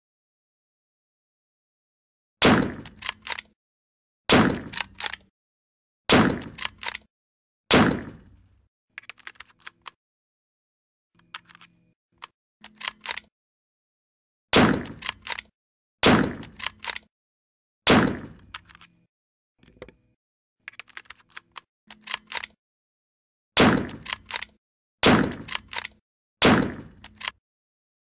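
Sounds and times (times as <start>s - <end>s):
rifle shots: 2.4s - 3.0s, 4.3s - 5.1s, 6.1s - 6.7s, 7.7s - 8.3s, 14.6s - 15.1s, 16.0s - 16.6s, 17.9s - 18.4s, 23.6s - 24.1s, 25.0s - 25.6s, 26.4s - 27.0s
metallic clicks handling rifle: 2.8s - 3.6s, 4.6s - 5.3s, 6.4s - 7.1s, 8.3s - 10.0s, 11.2s - 13.3s, 14.8s - 15.5s, 16.4s - 17.1s, 18.4s - 22.6s, 23.8s - 24.6s, 25.3s - 26.0s, 26.9s - 27.4s.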